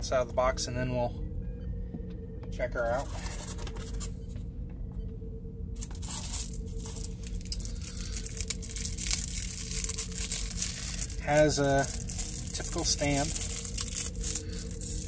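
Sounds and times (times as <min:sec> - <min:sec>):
plastic bag crinkling: 0:05.8 - 0:15.0.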